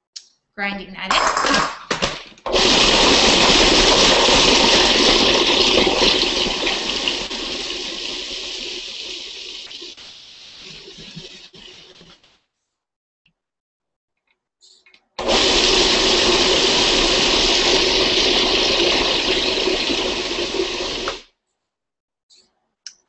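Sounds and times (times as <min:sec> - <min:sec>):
food processor grinding: 0:01.1 - 0:09.7, 0:15.2 - 0:21.2.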